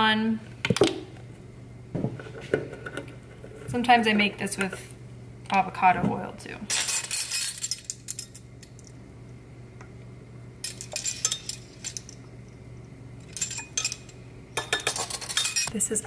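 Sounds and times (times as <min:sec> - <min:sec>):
metal spoons clinking: 0:10.6 - 0:12.2, 0:13.3 - 0:15.7.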